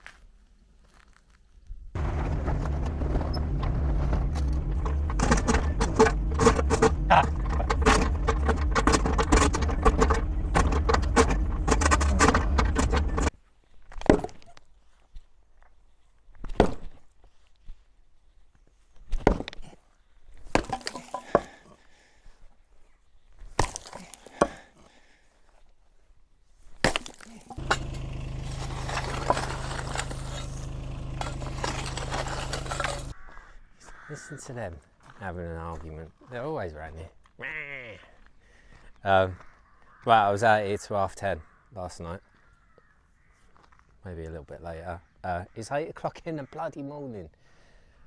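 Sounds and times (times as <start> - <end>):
excavator diesel engine: 2.0 - 13.3, 27.5 - 33.2
hammer blows breaking concrete: 26.9 - 33.1.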